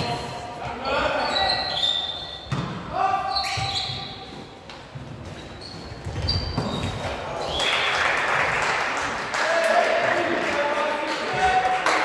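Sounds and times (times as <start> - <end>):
sneakers squeaking on gym floor: 0.0 - 7.7
people shouting and cheering: 9.3 - 12.0.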